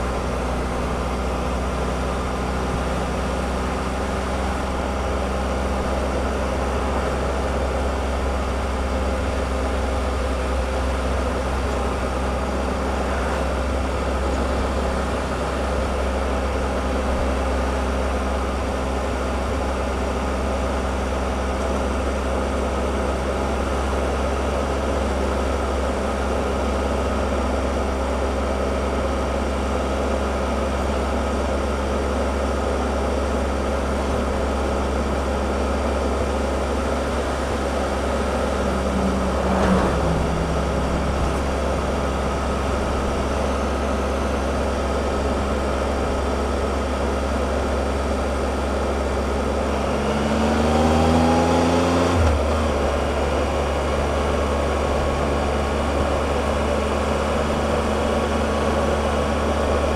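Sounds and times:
motorcycle engine running: 0:00.0 - 0:59.9
road noise: 0:00.0 - 0:59.9
wind noise: 0:37.5 - 0:44.5.

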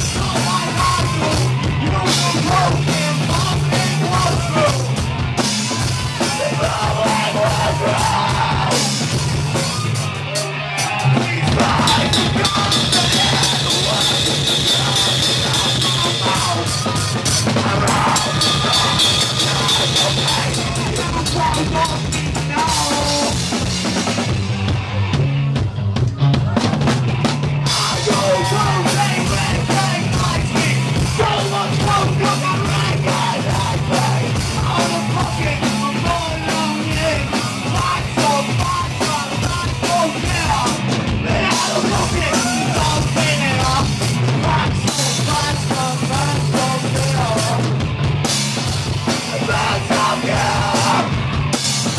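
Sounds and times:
pounding drum kit: 0:00.0 - 0:51.9
punk rock band playing: 0:00.0 - 0:51.9.

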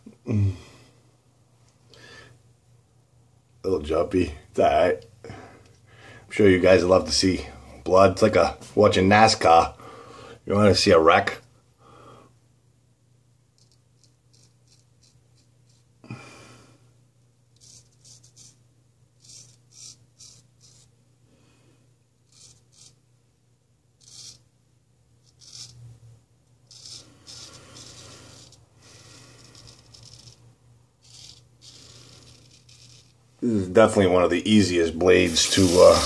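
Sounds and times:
razor scraping stubble: 0:13.6 - 0:15.9, 0:17.6 - 0:18.6, 0:19.2 - 0:20.9, 0:22.2 - 0:23.0, 0:24.0 - 0:24.5, 0:25.2 - 0:25.8, 0:26.6 - 0:34.0, 0:34.8 - 0:36.0.

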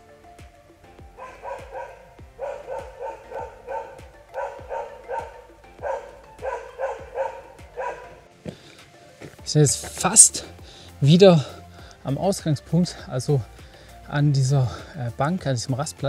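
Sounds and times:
dog barking: 0:01.2 - 0:08.2.

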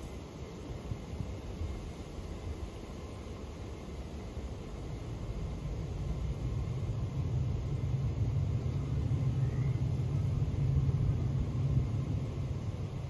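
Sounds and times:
passing vehicle engine rumble: 0:06.0 - 0:13.0.

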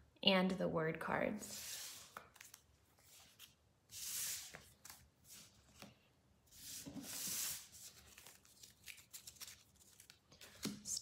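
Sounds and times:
cards sliding on wood: 0:01.5 - 0:08.4.

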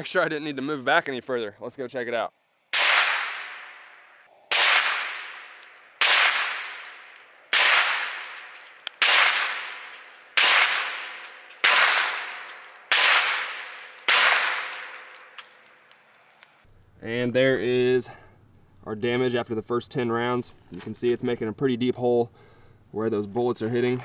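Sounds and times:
rifle shots with echo: 0:02.7 - 0:15.8.

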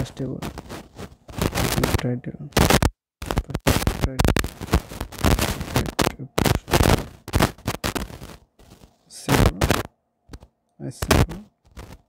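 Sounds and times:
person talking in distorted bursts: 0:00.0 - 0:00.6, 0:01.5 - 0:04.6, 0:05.3 - 0:07.1, 0:09.1 - 0:09.9, 0:10.8 - 0:11.5.

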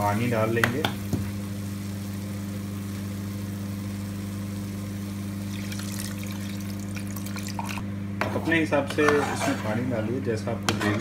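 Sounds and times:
steady low hum: 0:00.0 - 0:11.0
water pouring into pan: 0:05.4 - 0:07.8.

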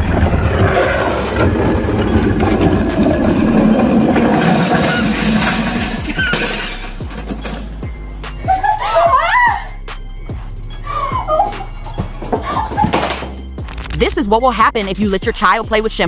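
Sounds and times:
rattling clatter: 0:00.0 - 0:08.0
trash bin rolling on asphalt: 0:00.0 - 0:08.0.

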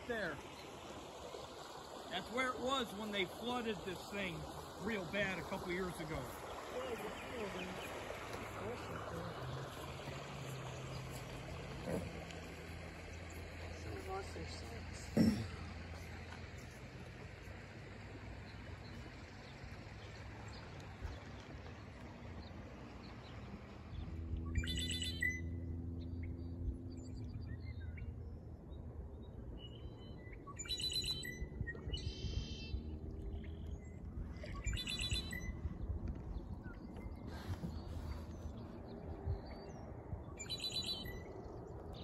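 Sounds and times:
bird trill: 0:24.5 - 0:25.6, 0:29.6 - 0:32.8, 0:34.5 - 0:35.7, 0:40.3 - 0:41.4
high patterned bird call: 0:24.6 - 0:25.4, 0:30.5 - 0:32.7, 0:34.6 - 0:35.6, 0:40.4 - 0:41.3.

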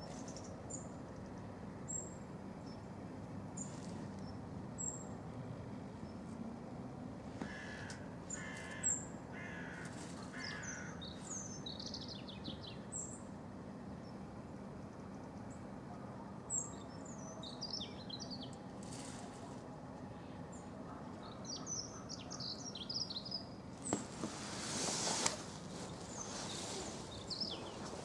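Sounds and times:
songbirds chirping and twittering: 0:00.0 - 0:06.4, 0:07.0 - 0:28.0
crow cawing: 0:07.4 - 0:11.0.

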